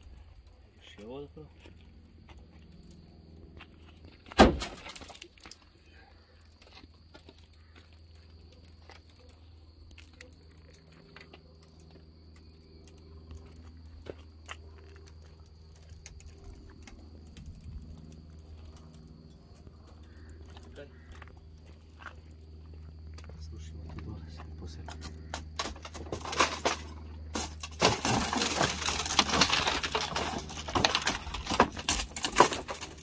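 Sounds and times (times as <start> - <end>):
car window glass breaking: 4.3 - 5.3.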